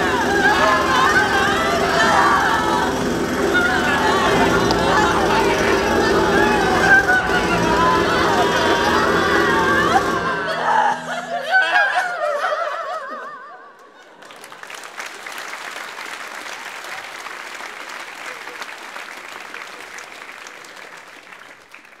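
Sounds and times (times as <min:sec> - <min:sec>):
audience applauding and cheering: 0:00.0 - 0:10.5, 0:14.1 - 0:22.0
voice holding wavering note: 0:00.0 - 0:12.2.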